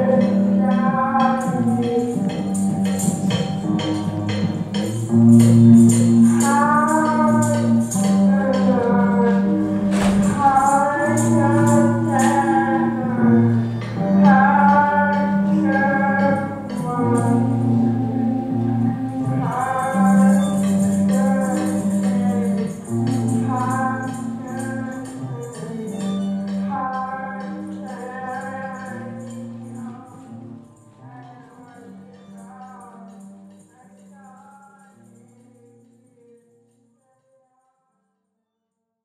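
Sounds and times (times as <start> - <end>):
low held bass notes: 0.0 - 30.5
guitars: 0.0 - 34.6
shaker percussion beat: 0.0 - 36.3
person singing: 0.0 - 36.4.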